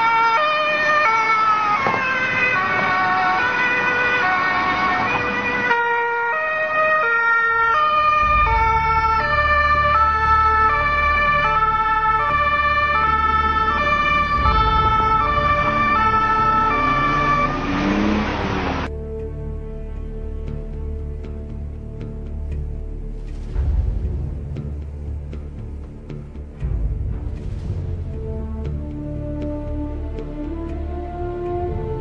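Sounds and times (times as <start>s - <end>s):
two-tone police siren: 0.0s - 18.9s
low steady rumble: 18.4s - 32.0s.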